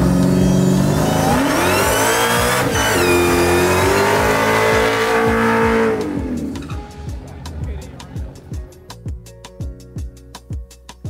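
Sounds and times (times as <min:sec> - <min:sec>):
car engine revving high: 0:00.0 - 0:06.7.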